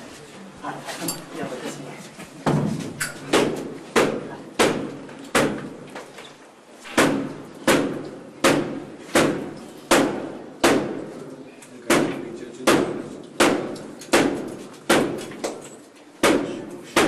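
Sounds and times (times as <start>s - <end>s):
heavy blows battering a door: 2.4s - 5.8s, 6.9s - 11.2s, 11.8s - 15.4s, 16.2s - 17.0s.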